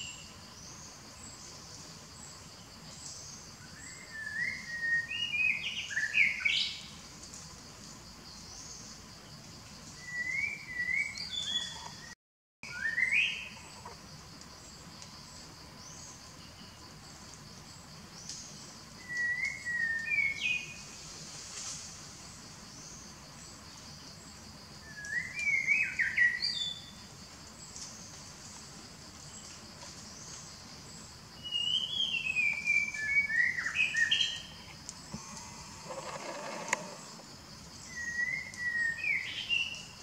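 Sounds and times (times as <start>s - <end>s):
bird chirping: 31.4s - 40.0s
steady high buzz: 34.9s - 37.7s.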